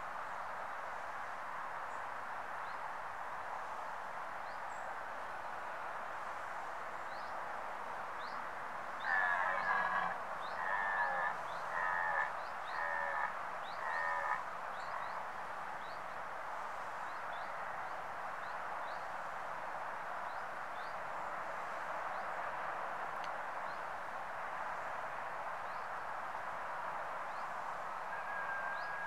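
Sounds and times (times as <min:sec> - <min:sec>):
deer stag roaring: 0:09.0 - 0:14.4.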